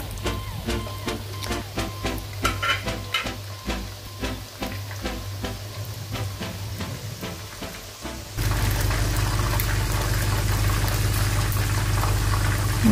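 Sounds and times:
chicken frying in hot oil: 0.0s - 12.9s.

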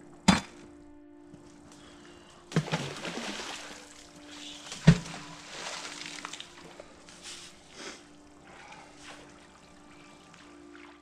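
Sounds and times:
magnet splashing into river: 2.5s - 3.9s, 4.7s - 6.7s
water and rope sloshing: 2.5s - 7.7s, 8.3s - 11.0s.

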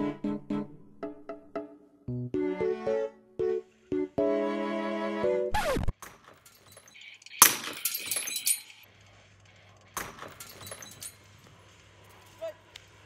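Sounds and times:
shards tinkling and scattering: 6.2s - 8.9s, 10.0s - 11.2s.

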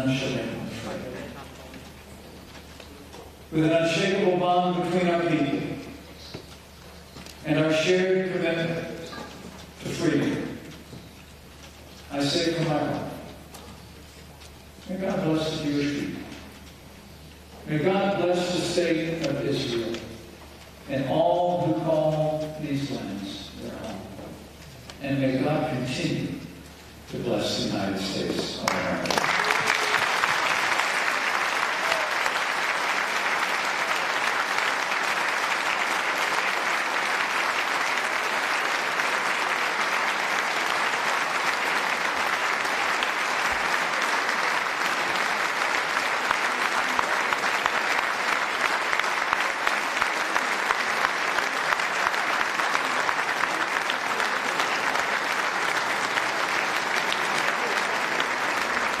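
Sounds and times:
audience applause: 28.6s - 59.0s.

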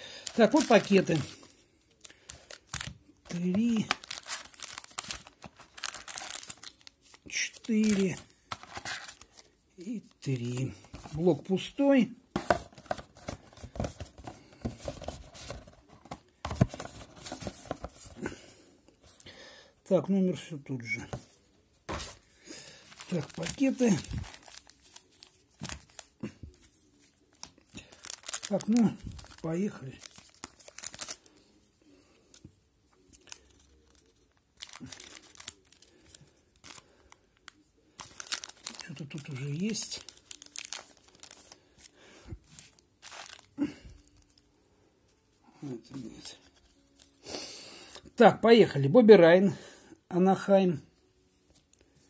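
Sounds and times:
foil wrapper crinkling: 0.1s - 9.5s, 22.6s - 31.6s, 33.0s - 41.9s, 42.5s - 44.4s.

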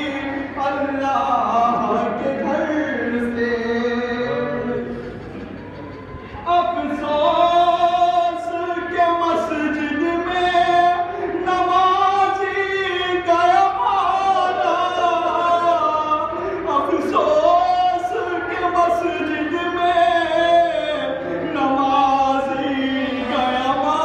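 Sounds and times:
man singing a lament: 0.0s - 5.1s, 6.4s - 24.0s.

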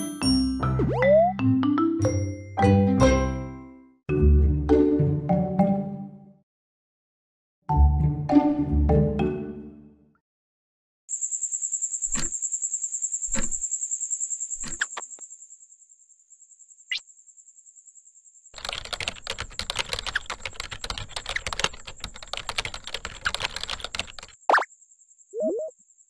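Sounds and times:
cricket trill: 11.1s - 26.0s
typing on laptop keyboard: 18.6s - 24.4s.

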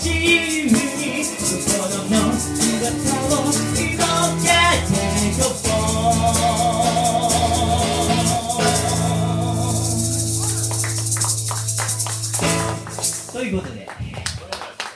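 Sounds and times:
man singing with vibrato: 0.0s - 10.8s
strummed acoustic guitar: 0.0s - 13.4s
maracas rattling: 0.0s - 13.6s.

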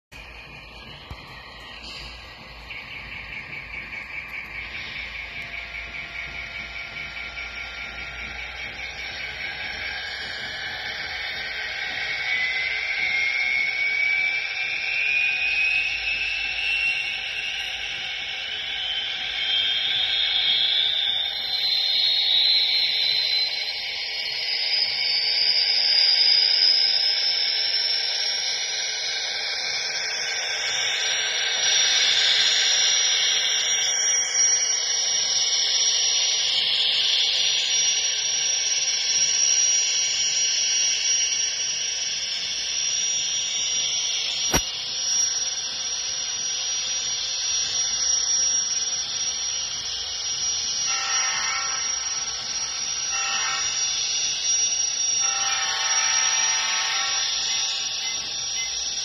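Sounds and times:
model locomotive turbine hiss: 0.2s - 59.0s
sharp click: 44.4s - 44.9s.

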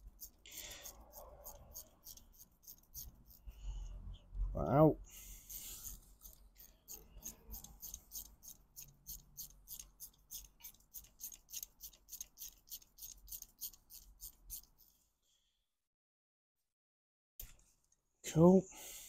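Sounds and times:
ratchet wrench clicking: 5.8s - 13.5s.

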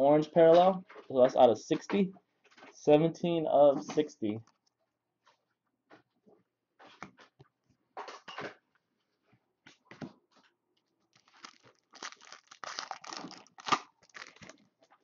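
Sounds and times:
foil wrapper crinkling and tearing: 11.1s - 14.7s.

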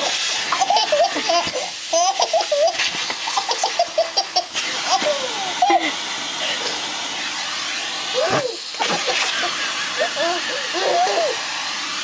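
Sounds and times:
vacuum cleaner hissing: 0.0s - 12.0s
baby laughing and squealing: 0.5s - 5.8s, 8.2s - 11.4s.

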